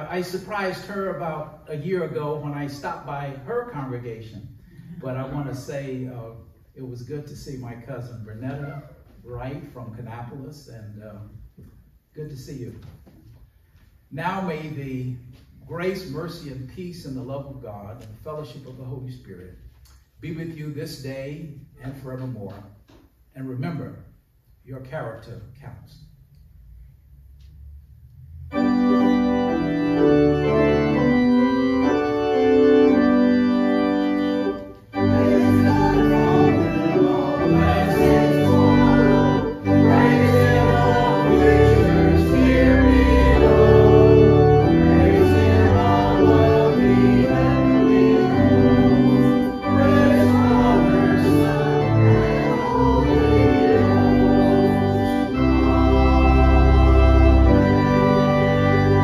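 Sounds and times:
church organ playing chords: 0.0s - 8.6s, 28.3s - 59.0s.

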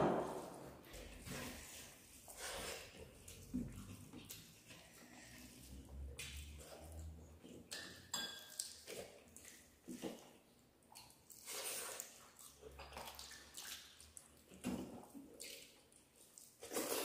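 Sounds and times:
fingers mixing food on plates: 0.3s - 13.2s.

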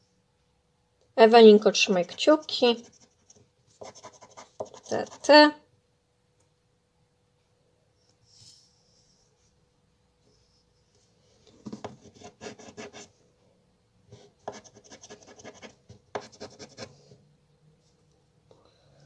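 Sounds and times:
scraper rasping scratch card: 2.0s - 5.3s, 12.1s - 13.1s, 14.5s - 16.9s.

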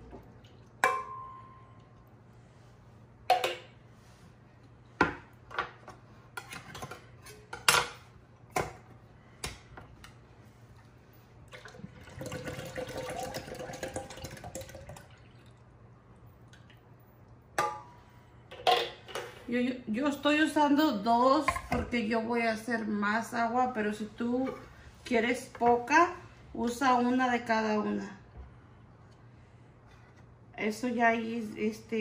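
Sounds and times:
thick liquid pouring into jar: 11.5s - 15.7s.

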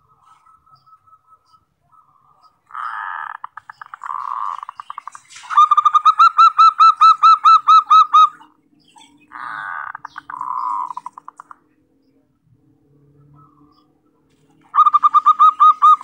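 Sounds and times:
dove cooing: 0.0s - 11.6s, 14.6s - 16.0s
dove rattling call: 2.7s - 11.6s, 14.6s - 16.0s.

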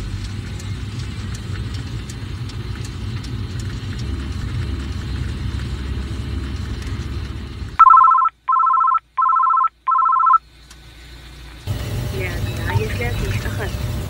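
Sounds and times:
car engine rumbling: 0.0s - 14.0s
phone electronic trill alert: 7.8s - 10.4s.

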